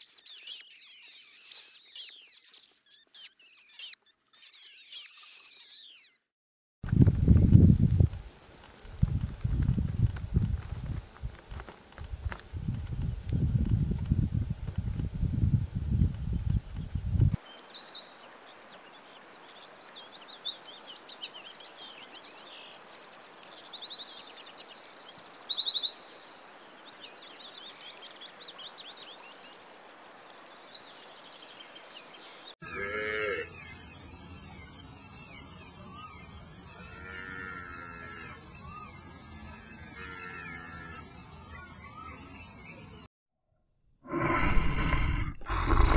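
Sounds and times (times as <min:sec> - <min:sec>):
songbird twittering trills: 0:00.0 - 0:06.3, 0:16.3 - 0:32.6, 0:33.5 - 0:36.9.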